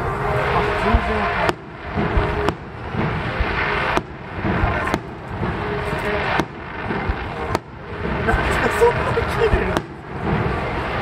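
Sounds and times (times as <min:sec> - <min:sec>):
firework shells bursting: 0:01.4 - 0:08.8.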